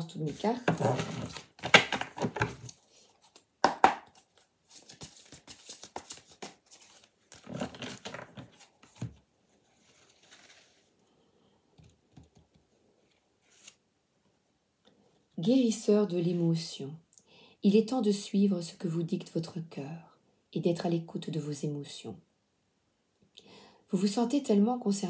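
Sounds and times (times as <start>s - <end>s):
cards shuffling: 0.3s - 9.2s, 13.4s - 13.8s.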